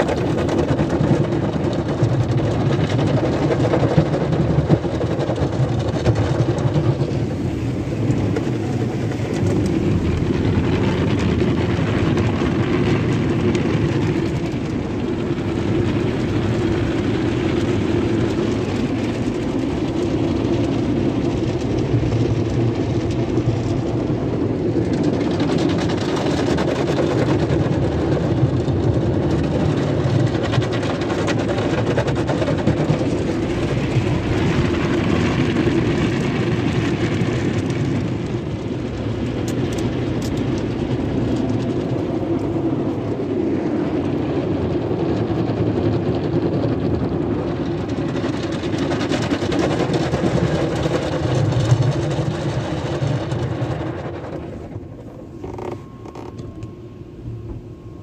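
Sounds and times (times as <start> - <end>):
car wash brushes scrubbing car: 0.0 - 46.2
soapy water: 0.0 - 56.3.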